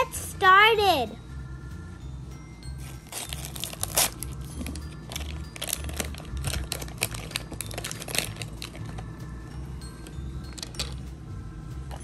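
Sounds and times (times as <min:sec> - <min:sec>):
foil wrapper tearing and crinkling: 0:02.8 - 0:08.9.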